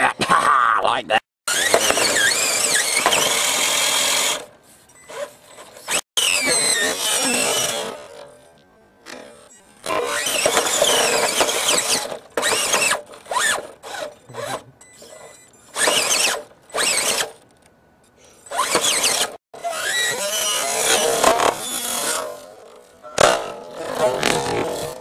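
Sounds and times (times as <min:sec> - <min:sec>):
electric motor whining: 0:01.5 - 0:04.5, 0:05.1 - 0:08.3, 0:09.8 - 0:17.4, 0:18.5 - 0:22.8.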